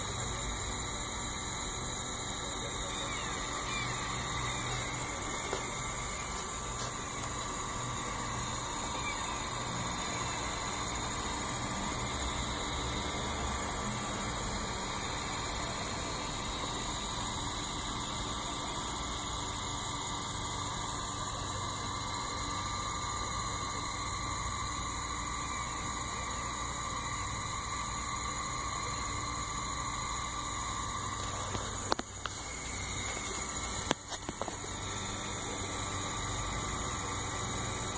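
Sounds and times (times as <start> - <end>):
cooling fan: 0.0 - 37.9
machine hum: 0.0 - 37.9
stepper motors whining: 0.0 - 37.9.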